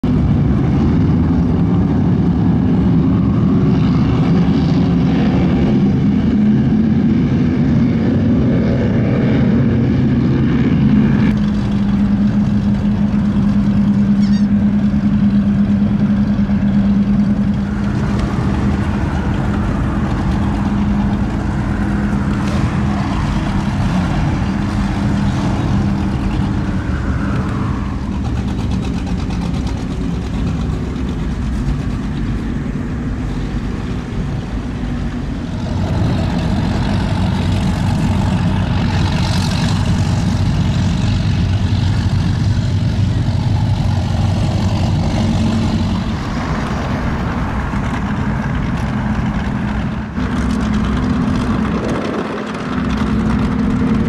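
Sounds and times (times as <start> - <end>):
powerboat engines droning: 0.0 - 54.0
wind: 0.0 - 54.0
rushing water: 11.4 - 54.0.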